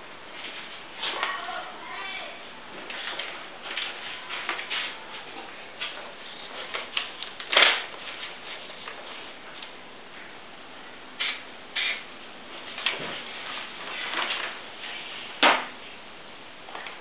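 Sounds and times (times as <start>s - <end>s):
paper rustling and crinkling: 2.7s - 9.8s, 12.6s - 15.6s.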